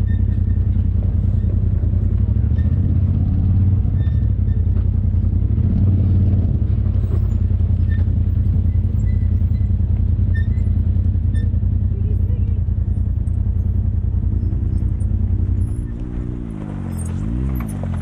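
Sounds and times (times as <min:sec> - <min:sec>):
vehicle engine running at low revs: 0:00.0 - 0:18.0.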